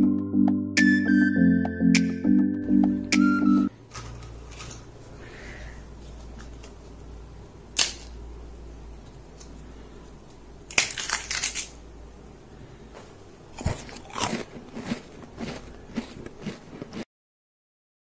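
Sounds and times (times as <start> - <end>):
crisp papads snapping and crackling: 10.7 - 11.8.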